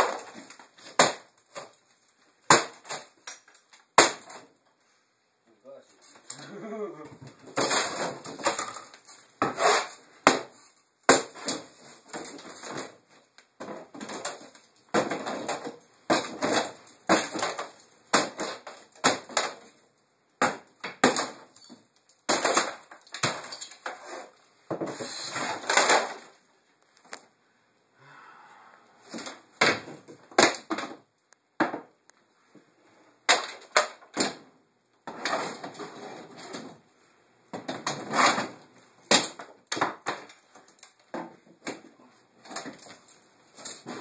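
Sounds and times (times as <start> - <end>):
boards cracking and splintering: 0.0 - 1.8, 7.4 - 13.0, 13.6 - 19.8, 20.4 - 26.4, 29.1 - 31.0, 33.3 - 34.4, 37.6 - 44.0
pole smashing wooden cabinets: 0.0 - 1.8, 2.4 - 4.5, 7.2 - 19.8, 20.4 - 26.4, 29.0 - 31.9, 33.2 - 36.8, 37.5 - 44.0.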